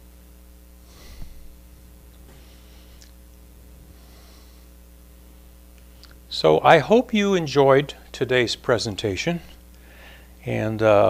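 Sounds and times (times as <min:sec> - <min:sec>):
low hum: 0:00.0 - 0:11.0
man breathing out: 0:00.8 - 0:01.6, 0:09.8 - 0:10.4.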